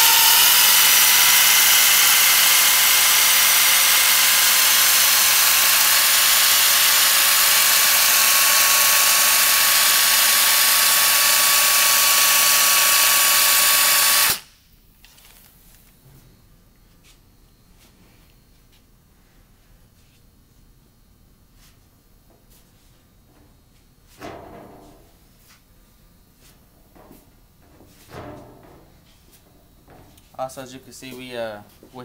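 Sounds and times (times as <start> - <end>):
air-powered filler gun hissing: 0.0 - 14.6.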